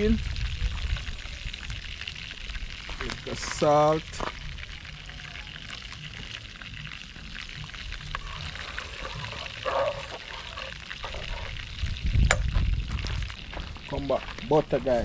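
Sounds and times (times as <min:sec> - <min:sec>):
chicken sizzling in oil: 0:00.0 - 0:14.7.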